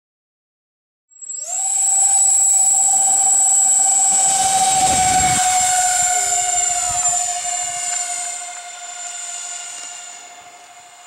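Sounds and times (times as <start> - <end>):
electric ducted fans whining: 1.4 - 11.0
low rumble: 4.0 - 9.1.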